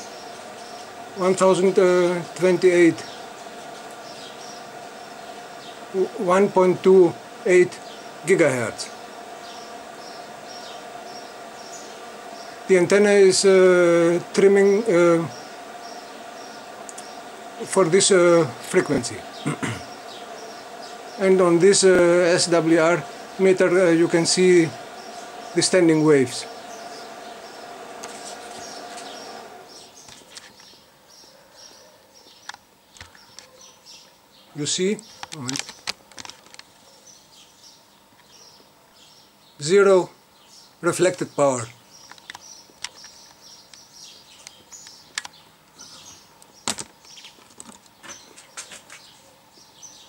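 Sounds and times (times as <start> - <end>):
steady hum: 0.0 - 30.4
small birds chirping: 0.0 - 50.0
faint high bird chirps: 24.7 - 35.9.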